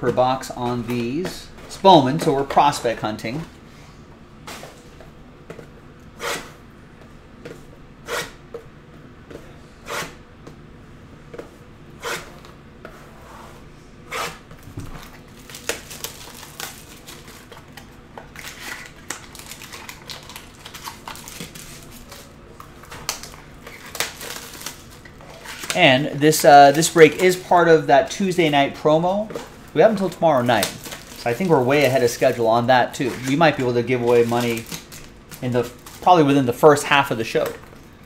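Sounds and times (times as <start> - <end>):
shrink wrap and foil crinkling: 15.0 - 38.0.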